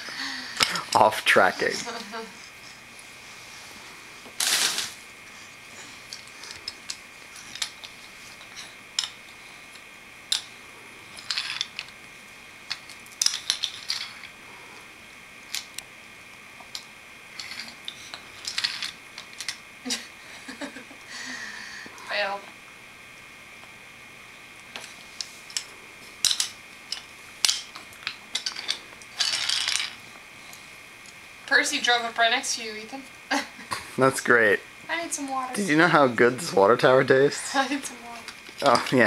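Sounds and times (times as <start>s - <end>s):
toy trains clicking on wooden track: 11.1s - 11.9s, 12.7s - 14.4s, 17.4s - 19.6s, 25.5s - 30.0s, 37.4s - 39.0s.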